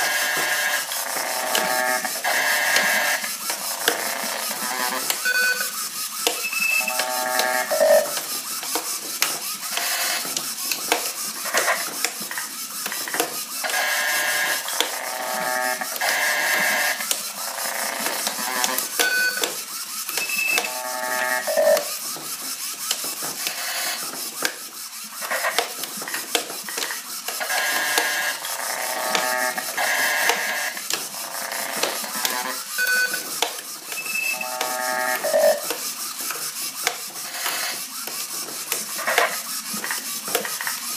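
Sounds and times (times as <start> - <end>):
glitchy electronic tones: 0.0 - 3.3, 6.4 - 8.2, 20.1 - 22.0, 27.4 - 33.2, 34.0 - 35.7
toy motor whirring and rattling: 0.0 - 40.9.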